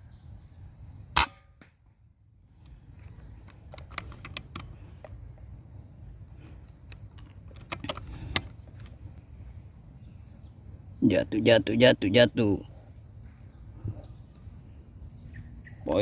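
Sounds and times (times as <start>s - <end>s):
high insect drone: 0.0s - 16.0s
air rifle firing: 1.2s - 1.7s.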